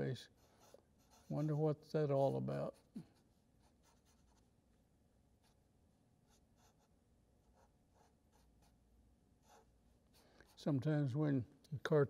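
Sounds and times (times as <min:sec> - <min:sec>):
marker scratching on paper: 0:00.3 - 0:01.6, 0:02.7 - 0:04.5, 0:06.2 - 0:10.7.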